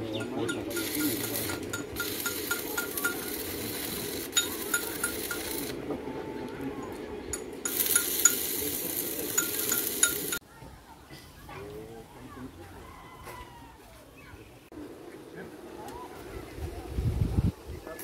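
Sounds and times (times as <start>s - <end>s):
welding arc crackling: 0.2s - 5.8s, 7.3s - 10.4s.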